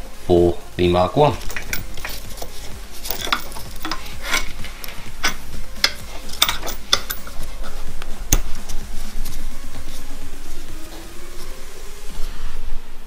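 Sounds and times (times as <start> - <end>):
metallic clicks and scrapes: 1.4 - 8.5.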